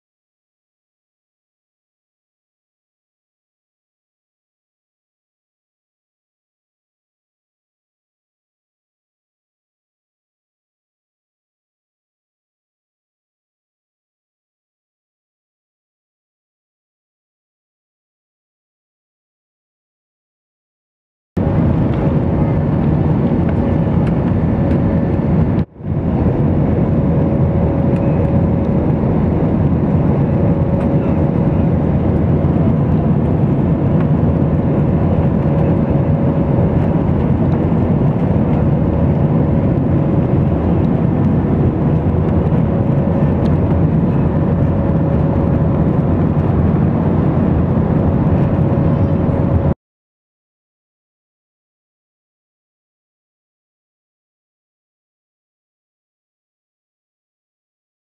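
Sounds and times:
jet engines and air rush: 21.4 - 49.8.

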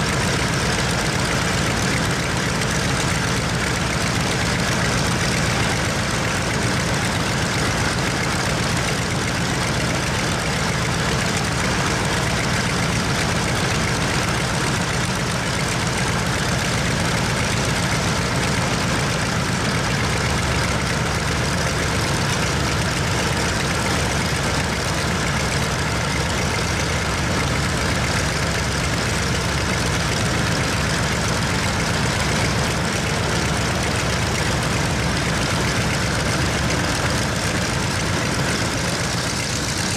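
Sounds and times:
radial aircraft engine running: 0.0 - 39.9.

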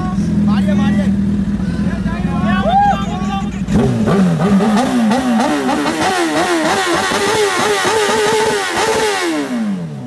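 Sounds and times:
motorcycle engine revving: 0.0 - 2.6, 3.4 - 10.0.

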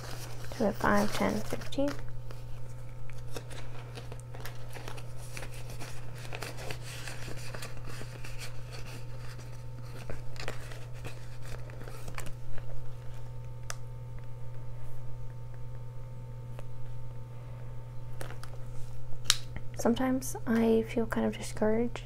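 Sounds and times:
paper bills rustling: 0.0 - 13.4
low hum: 0.0 - 22.0.

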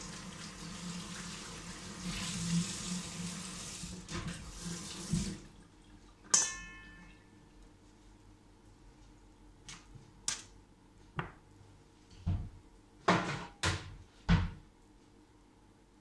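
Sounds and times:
cupboard door opening and shutting: 12.3 - 14.6.

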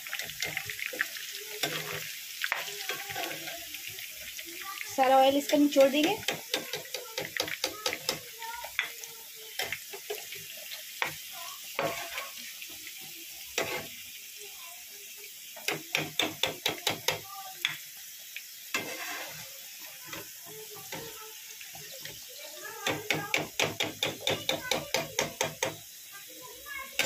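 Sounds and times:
onions sizzling in hot oil: 0.0 - 27.0
metal spoon scraping and tapping pan: 0.1 - 3.5, 5.4 - 9.0, 11.8 - 12.3, 13.6 - 13.9, 15.6 - 17.8, 18.7 - 19.4, 22.8 - 25.8.

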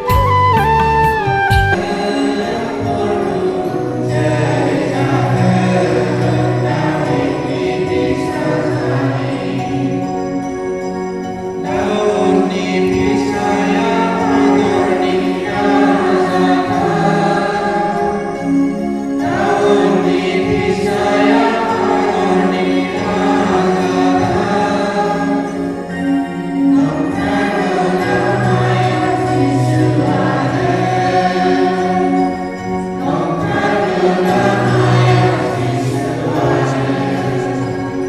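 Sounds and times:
choir singing a hymn: 1.8 - 38.0.

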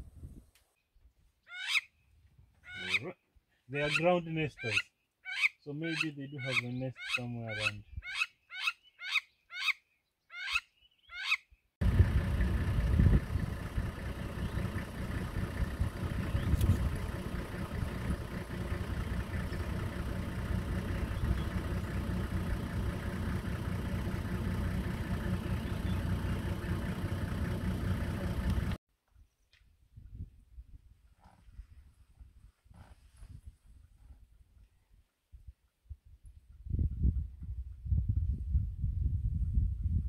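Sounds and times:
lapwing sharp calls: 1.5 - 1.9, 2.7 - 3.1, 3.8 - 11.4.

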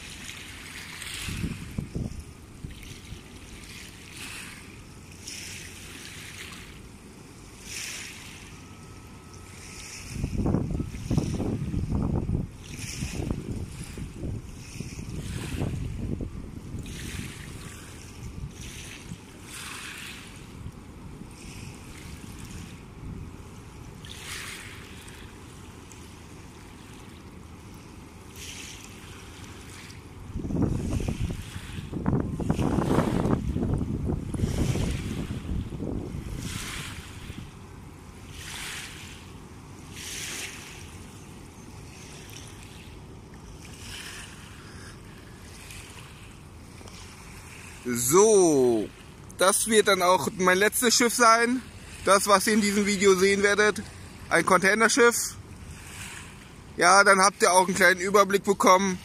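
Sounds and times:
wind rumbling on microphone: 0.0 - 4.4, 9.8 - 19.5, 30.2 - 37.6
river waves splashing against bank: 0.0 - 59.0.

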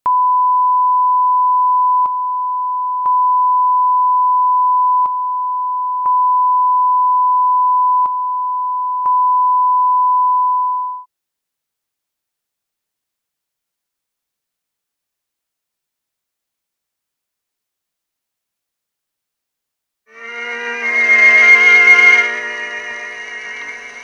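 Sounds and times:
pure test tone: 20.1 - 24.0.

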